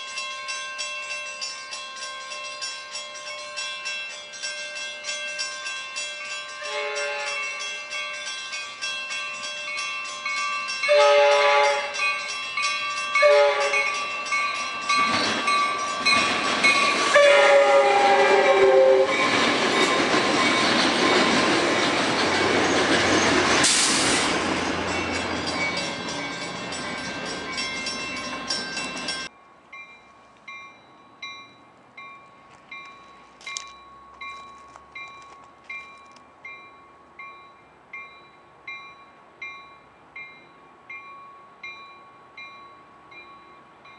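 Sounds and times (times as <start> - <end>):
crossing bell ringing: 0.0 - 43.9
train passing: 0.0 - 43.9
train horn blasts: 6.6 - 7.6, 10.9 - 12.0, 13.2 - 14.0, 17.1 - 19.3.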